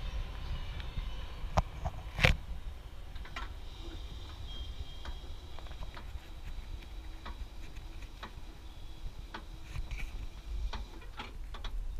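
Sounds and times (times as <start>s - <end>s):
wind rumbling on microphone: 0.0s - 11.9s
crossing signal clicking: 3.1s - 9.6s.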